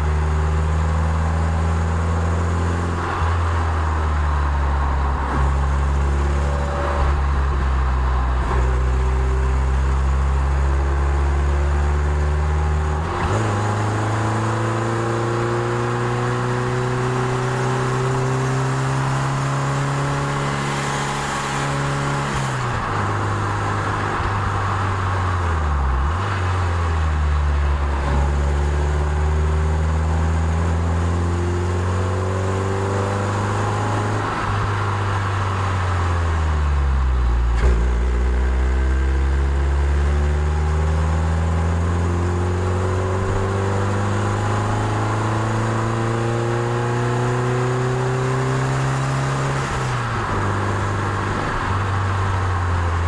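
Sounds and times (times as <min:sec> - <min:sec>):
car engine pulling uphill: 0:00.0 - 0:53.0
wind and tyre noise: 0:00.0 - 0:53.0.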